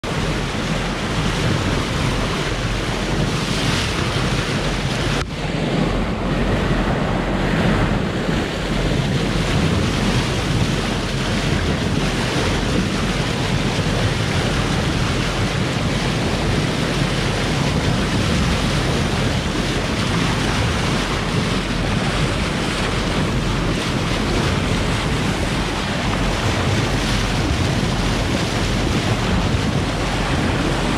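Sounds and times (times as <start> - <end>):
water rushing past boat hull: 0.0 - 30.9
wind buffeting microphone: 0.0 - 30.9.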